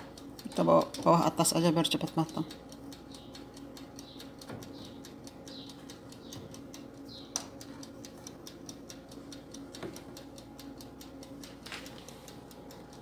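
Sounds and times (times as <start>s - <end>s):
oven humming: 0.0s - 13.0s
timer ticking rapidly: 0.0s - 13.0s.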